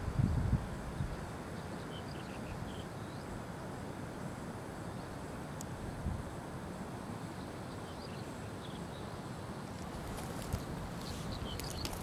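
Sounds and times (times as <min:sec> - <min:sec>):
wind buffeting microphone: 0:00.0 - 0:01.4, 0:09.8 - 0:12.0.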